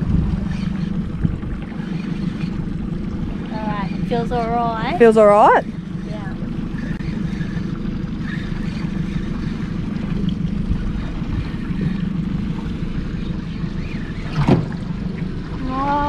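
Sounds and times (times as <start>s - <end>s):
wind noise: 0.0s - 1.9s
outboard motor running: 0.0s - 16.0s
water noise: 0.0s - 16.0s.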